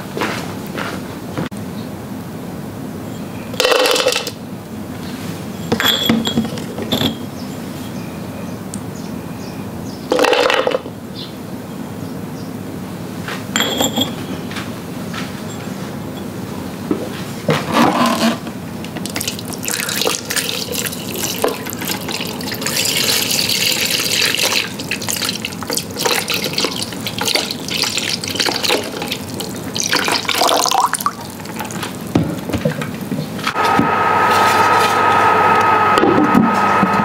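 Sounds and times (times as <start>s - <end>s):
tap water running into sink: 19.0s - 33.2s
hum with high whine: 31.1s - 37.0s.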